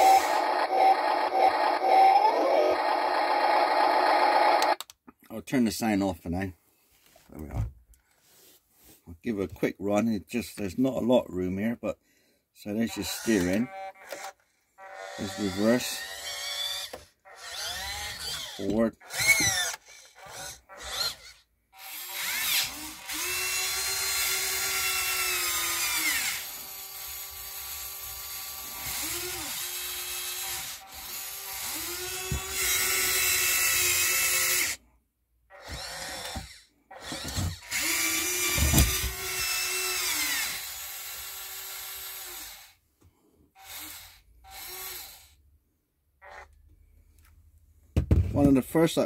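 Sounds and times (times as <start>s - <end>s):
electric motors whining: 0.0s - 4.8s, 13.0s - 34.8s, 35.5s - 42.8s.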